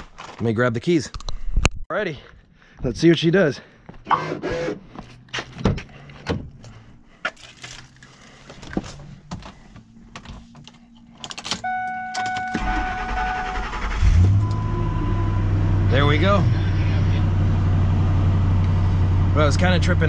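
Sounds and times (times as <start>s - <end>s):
keys jangling: 10.6s - 11.6s
car starter cranking engine: 11.4s - 16.1s
steady tone: 14.3s - 19.4s.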